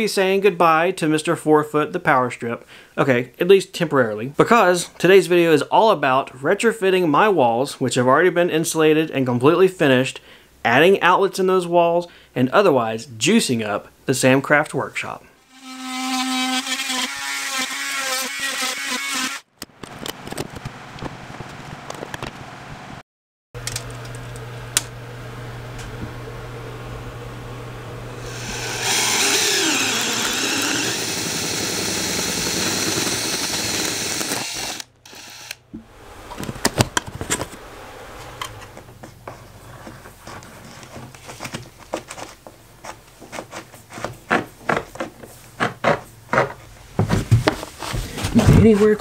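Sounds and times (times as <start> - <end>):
drill boring through wall: 15.5 - 19.5, 28.2 - 35.7
steady low hum: 23.6 - 32.6.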